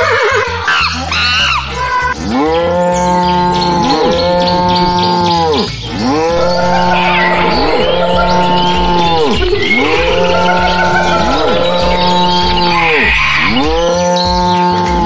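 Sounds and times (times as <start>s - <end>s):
cow mooing: 2.2s - 14.1s.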